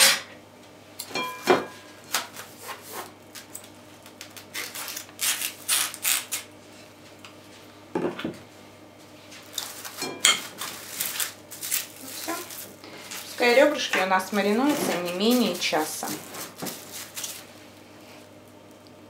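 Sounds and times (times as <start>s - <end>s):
cling film crinkling: 3.3s - 6.5s, 9.4s - 17.6s.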